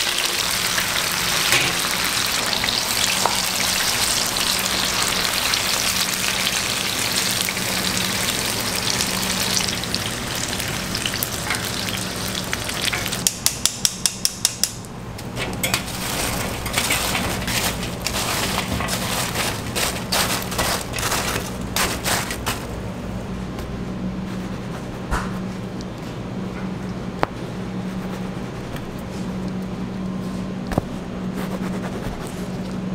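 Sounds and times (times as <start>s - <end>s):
food deep-frying in oil: 0.0s - 14.6s, 15.5s - 22.5s.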